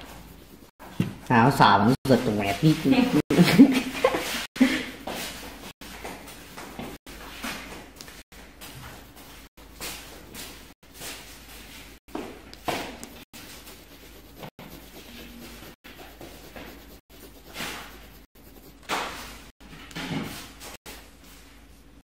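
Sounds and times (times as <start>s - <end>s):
pencil scratching on paper: 0.0s - 1.1s, 12.7s - 19.6s.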